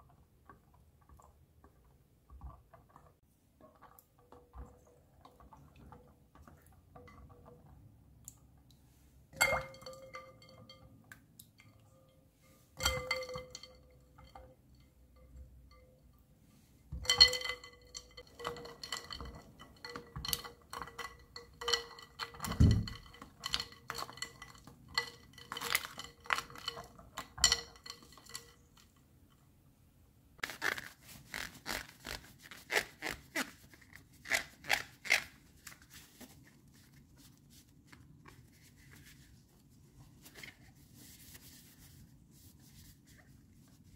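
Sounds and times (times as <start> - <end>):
ice and spoon clinking glass bowl: 9.4 - 10.9, 12.8 - 16.0, 17.0 - 28.7
paper towel rustling: 35.5 - 43.9.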